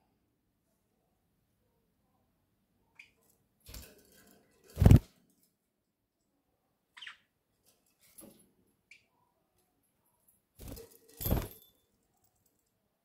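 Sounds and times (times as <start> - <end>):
budgerigar chirps: 7.0 - 7.2.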